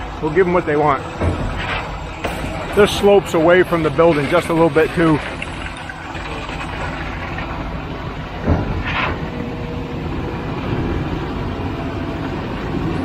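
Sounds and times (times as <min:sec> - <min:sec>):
truck engine running: 0:00.0 - 0:13.0
thump: 0:08.4 - 0:09.2.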